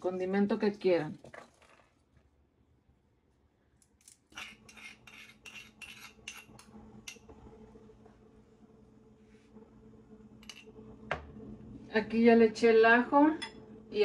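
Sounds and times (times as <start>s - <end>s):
spoon scraping stone mortar: 4.3s - 6.6s.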